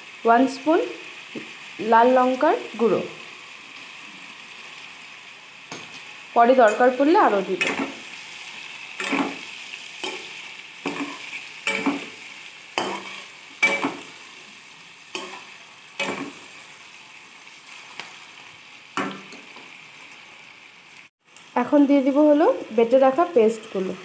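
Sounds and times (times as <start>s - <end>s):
chicken sizzling in oil: 0.0s - 24.0s
spatula scraping a pan: 7.6s - 14.3s, 15.1s - 16.6s.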